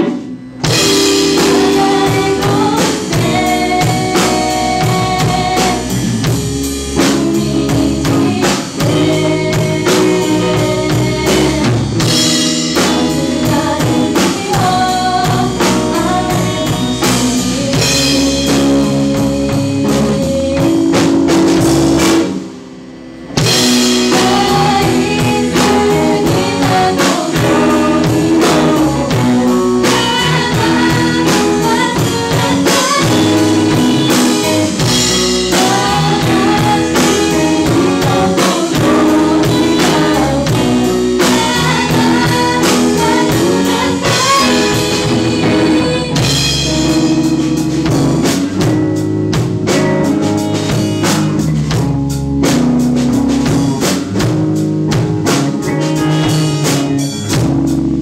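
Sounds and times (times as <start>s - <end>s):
bass guitar: 0.0s - 58.0s
drum kit: 0.0s - 58.0s
electric guitar: 0.0s - 58.0s
woman singing: 0.7s - 6.0s, 6.9s - 21.6s, 23.8s - 47.4s.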